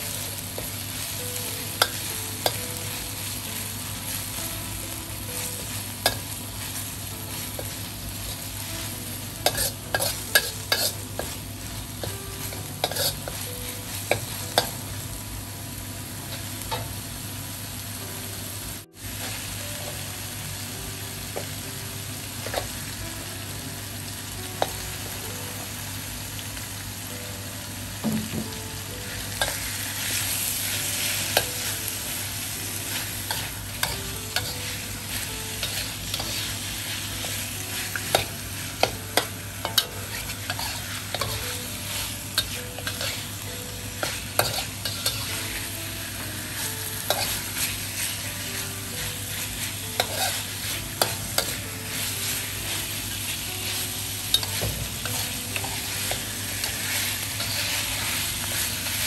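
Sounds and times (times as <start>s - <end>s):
pork sizzling in a wok: 0.0s - 59.0s
spatula scraping wok: 9.4s - 14.7s, 32.9s - 43.4s, 44.0s - 45.7s, 46.9s - 48.2s, 49.2s - 59.0s.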